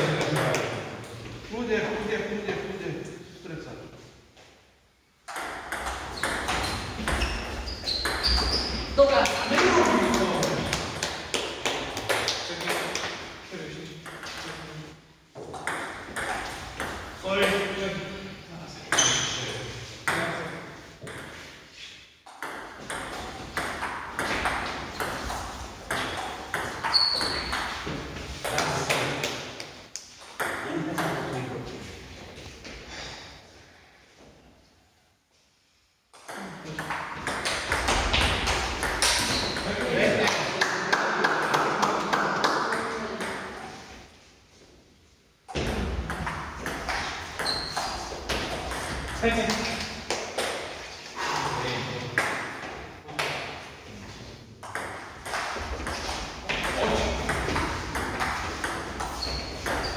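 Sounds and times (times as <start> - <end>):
high squeak: 6.2 - 8.8, 26.8 - 27.6, 47.4 - 48.0.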